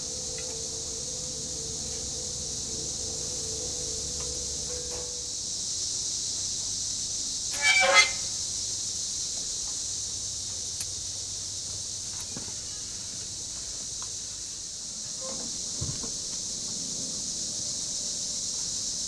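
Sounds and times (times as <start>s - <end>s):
insects chirping chorus: 0.0s - 19.0s
horn toot: 7.5s - 8.4s.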